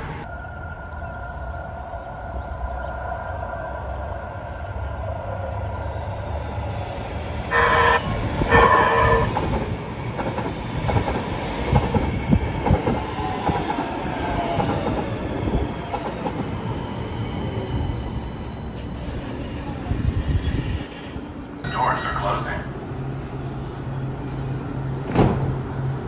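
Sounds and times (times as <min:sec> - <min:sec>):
train horn blasts: 0:07.5 - 0:09.5
train wheels clattering on track: 0:08.4 - 0:13.9, 0:14.5 - 0:16.6.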